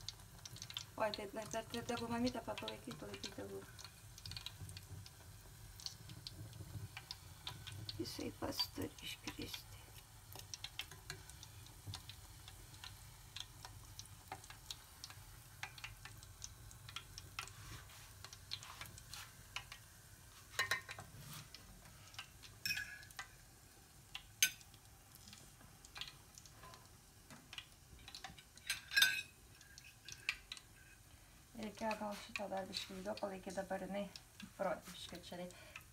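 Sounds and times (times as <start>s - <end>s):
hot fat crackling and spitting: 0.0s - 35.9s
metal clinks against pot: 22.6s - 23.1s, 28.6s - 30.3s.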